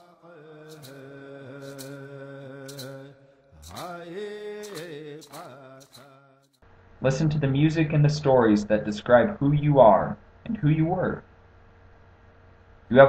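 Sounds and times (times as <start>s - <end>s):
man chanting: 0.0s - 6.4s.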